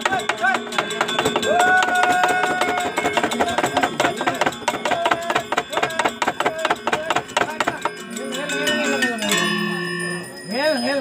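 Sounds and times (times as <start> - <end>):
wooden knocking on chest: 0.0 - 8.0
metallophone notes ringing: 0.0 - 11.0.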